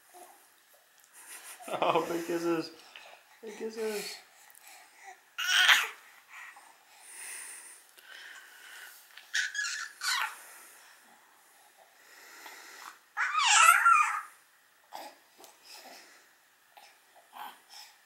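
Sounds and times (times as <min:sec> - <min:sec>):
baby squealing: 0:05.4 - 0:06.0, 0:09.3 - 0:10.4, 0:13.2 - 0:14.3.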